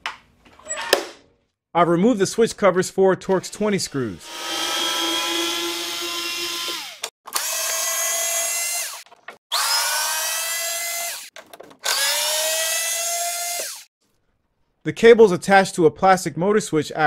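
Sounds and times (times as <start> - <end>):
electric screwdriver whirring: 4.2 - 13.9.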